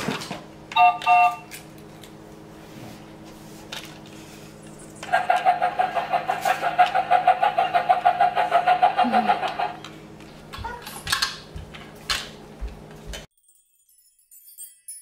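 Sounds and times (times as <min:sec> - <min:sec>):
toy train pulsing beep: 0:00.8 - 0:01.4.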